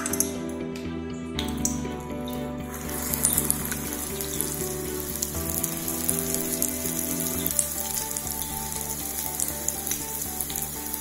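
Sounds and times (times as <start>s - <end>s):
background music: 0.0s - 11.0s
food sizzling in hot oil: 2.7s - 11.0s.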